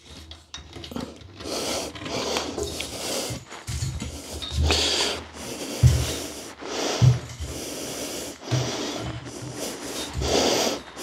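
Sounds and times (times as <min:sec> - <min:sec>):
metal tubes scraping in fittings: 0:00.0 - 0:06.4.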